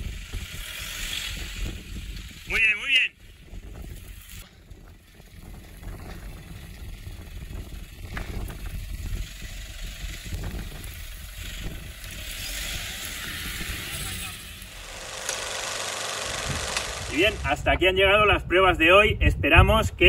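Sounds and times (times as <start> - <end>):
diesel engine low rumble: 3.2 - 15.4.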